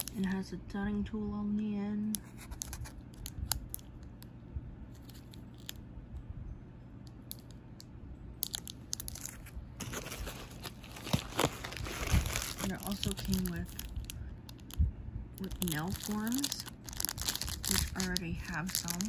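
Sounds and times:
plastic wrap crinkling: 0.0s - 0.4s, 2.2s - 3.9s, 8.4s - 14.8s, 15.4s - 19.0s
low steady hum: 0.0s - 19.0s
cellophane wrapper clicks: 2.2s - 4.3s, 8.4s - 9.4s, 10.3s - 14.8s, 15.4s - 19.0s.

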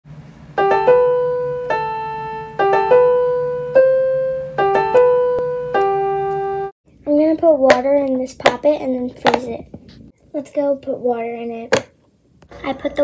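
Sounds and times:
piano-like keyboard notes: 0.5s - 6.8s.

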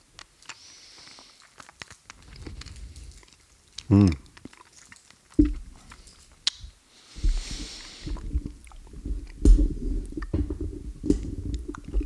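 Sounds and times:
person sucking and chewing candy: 0.0s - 12.0s
soft hiss: 0.0s - 12.0s
candy clicking against teeth: 6.4s - 6.7s.

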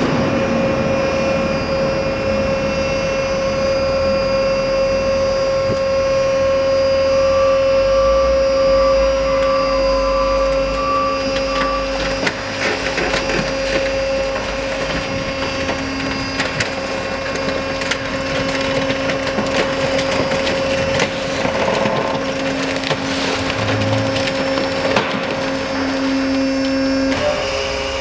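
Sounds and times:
hydraulic power unit hum: 0.0s - 28.0s
car body cracking and crumpling: 11.3s - 27.2s.

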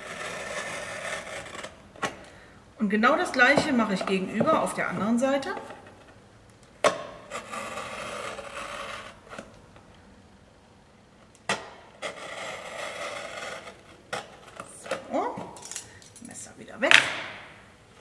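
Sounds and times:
knife blade scraping through cardboard: 0.0s - 1.8s, 7.2s - 9.5s, 12.0s - 14.7s.

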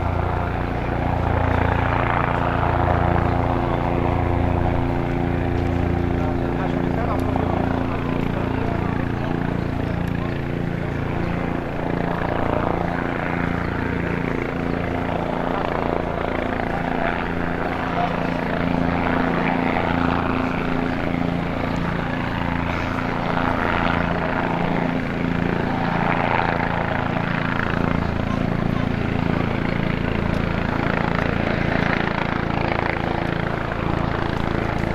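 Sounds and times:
helicopter rotor and engine drone: 0.0s - 34.9s.

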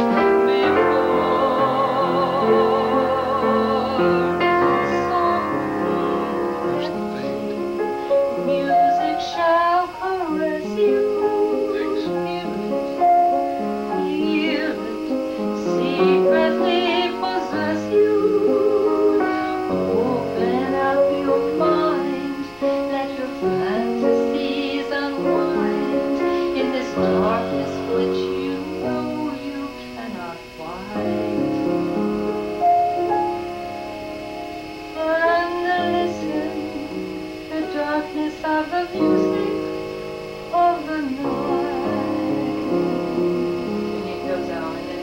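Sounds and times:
woman singing with vibrato: 0.0s - 32.0s, 32.6s - 45.0s
piano: 0.0s - 45.0s.

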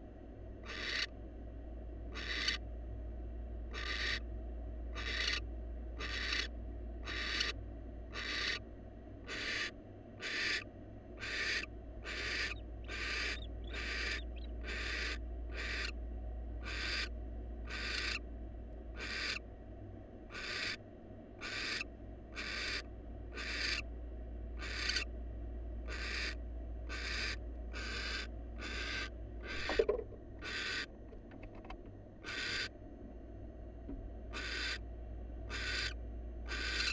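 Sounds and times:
owl hissing calls: 0.6s - 1.1s, 2.1s - 2.6s, 3.7s - 4.2s, 5.0s - 5.4s, 6.0s - 8.6s, 9.3s - 16.0s, 16.6s - 18.2s, 19.0s - 19.4s, 20.3s - 20.8s, 21.4s - 23.8s, 24.6s - 25.1s, 25.9s - 30.9s, 32.2s - 32.7s, 34.3s - 34.8s, 35.5s - 36.9s.

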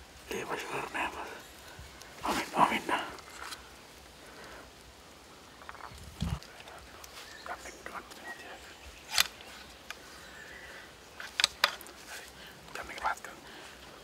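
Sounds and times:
rifle metallic clicks: 9.1s - 10.0s, 11.2s - 11.9s.

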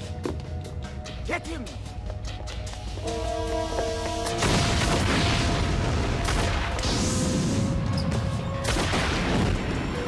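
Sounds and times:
film music score: 0.0s - 10.0s
explosions with rushing roar: 4.4s - 7.7s.

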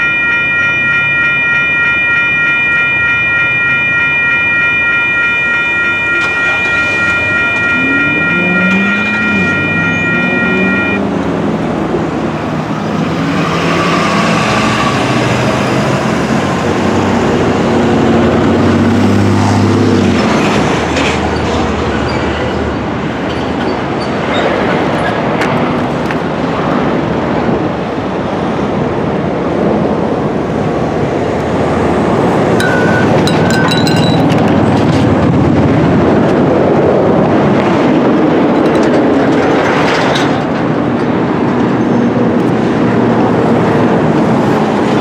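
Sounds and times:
railroad crossing bells ringing: 0.0s - 13.1s, 31.6s - 45.0s
car engines pulling away: 7.6s - 21.2s.

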